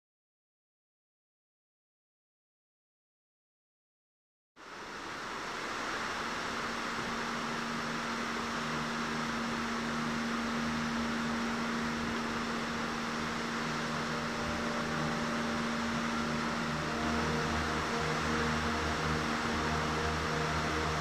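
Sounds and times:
low steady hum: 0:04.6 - 0:21.0
river water rushing: 0:04.6 - 0:21.0.

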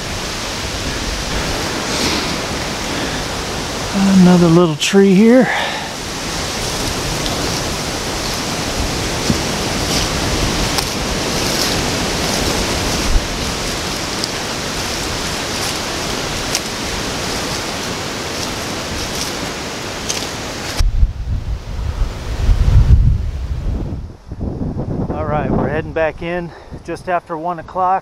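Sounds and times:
strong wind through trees: 0:00.0 - 0:28.0
faint ticks and crackles: 0:06.5 - 0:20.8.

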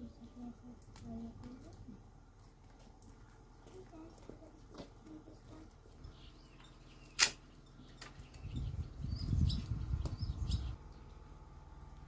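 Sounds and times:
uneven low rumbling: 0:07.6 - 0:12.0.

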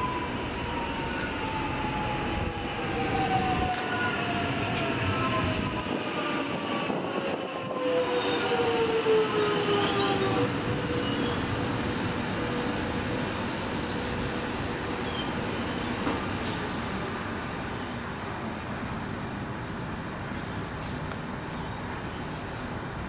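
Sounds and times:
wheel and brake squeals: 0:09.6 - 0:13.4, 0:14.4 - 0:17.0.

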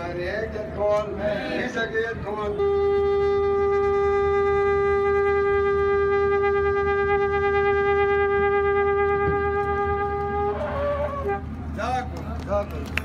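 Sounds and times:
shofar blast: 0:02.4 - 0:11.6
crowd voices: 0:09.6 - 0:13.0.

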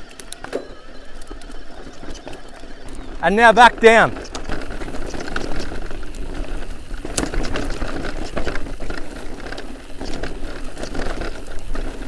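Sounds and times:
bike rolling rattle: 0:00.0 - 0:12.0
clicks and knocks over stones: 0:04.1 - 0:12.0.

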